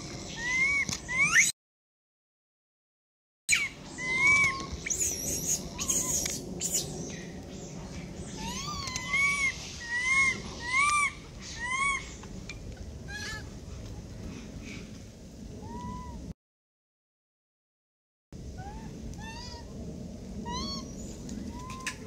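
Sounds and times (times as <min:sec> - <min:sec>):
monkey coo calls: 0:00.2 - 0:01.5, 0:03.5 - 0:06.9, 0:08.4 - 0:12.2.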